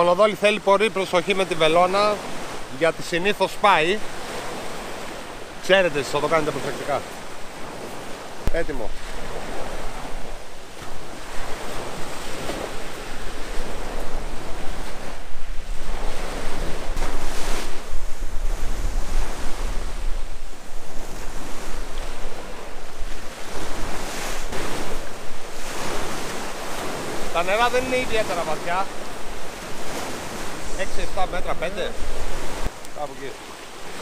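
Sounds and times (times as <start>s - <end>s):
sea waves washing on shore: 0.0s - 34.0s
wind buffeting microphone: 6.9s - 34.0s.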